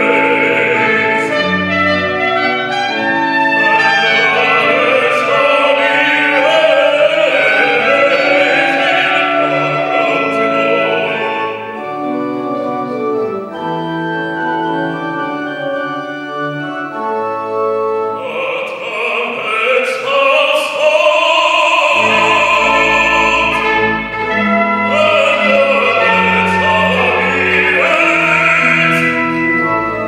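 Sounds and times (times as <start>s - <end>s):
operatic bass voice singing: 0.0s - 2.0s, 3.7s - 11.8s, 18.2s - 29.6s
organ playing sustained chords: 0.0s - 30.0s.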